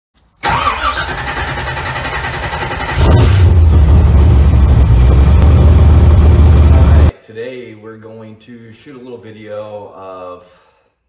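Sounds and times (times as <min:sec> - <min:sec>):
car engine starting: 0:00.4 - 0:07.1.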